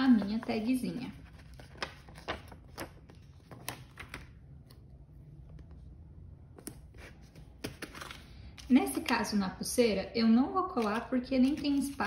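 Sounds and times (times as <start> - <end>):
low steady hum: 0.0 - 12.0
sticker sheet crinkling: 10.8 - 12.0.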